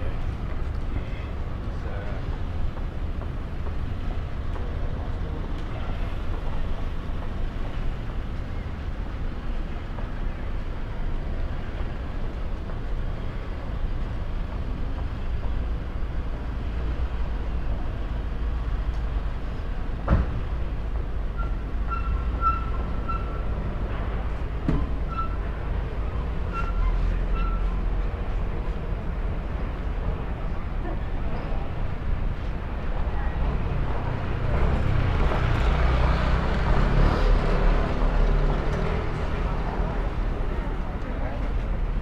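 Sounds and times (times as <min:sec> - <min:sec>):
distant traffic: 0:00.0 - 0:42.0.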